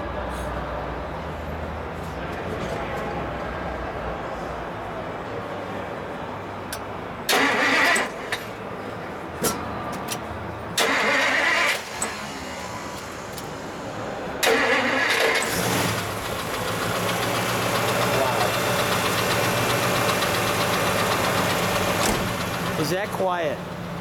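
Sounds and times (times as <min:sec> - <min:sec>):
car starter cranking: 0:07.3 - 0:08.6, 0:10.8 - 0:13.6, 0:14.4 - 0:23.0.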